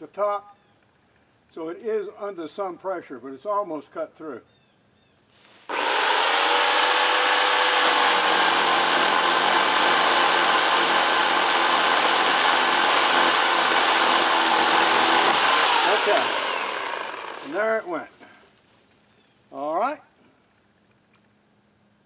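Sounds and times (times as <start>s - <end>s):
electric chainsaw cutting wood: 5.7s - 18.3s.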